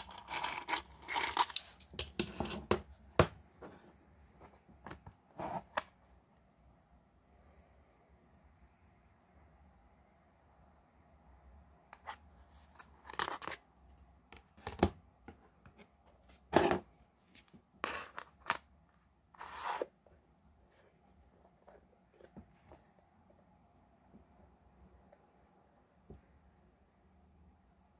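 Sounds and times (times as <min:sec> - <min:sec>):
model kit pieces scraping: 0:00.0 - 0:02.0.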